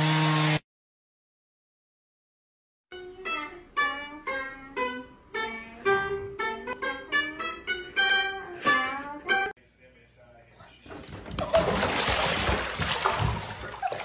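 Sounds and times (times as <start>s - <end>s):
plucked lute melody: 2.9s - 9.5s.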